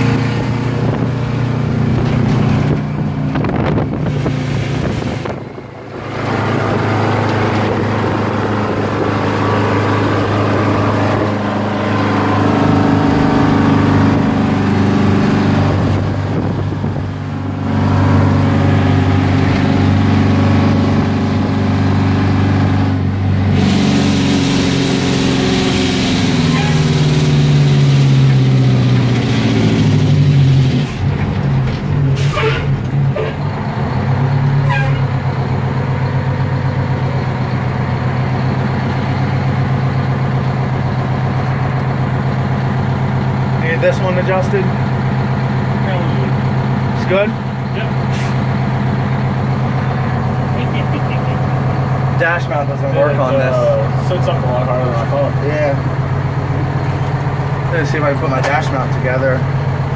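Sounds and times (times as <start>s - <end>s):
diesel truck engine: 0.0s - 59.9s
air brakes hissing: 32.2s - 33.4s, 48.0s - 48.5s.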